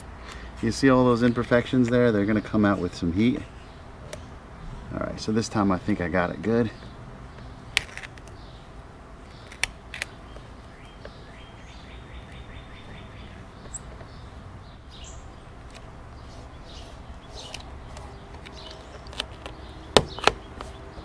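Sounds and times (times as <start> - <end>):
crackles of vinyl film handled: 7.7 - 8.5, 9.2 - 11.2, 17.2 - 20.8
bird chirping and trilling: 8.3 - 21.0.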